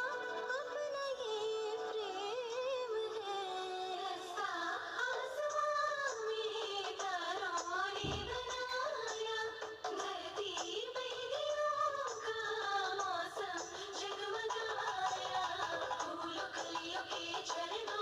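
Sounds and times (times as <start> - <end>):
woman singing ornamented melody: 0.0 - 4.8
low thump: 8.0 - 8.8.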